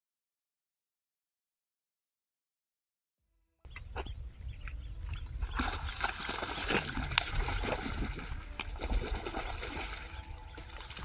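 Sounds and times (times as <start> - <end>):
water splashing and sloshing: 3.8 - 11.0.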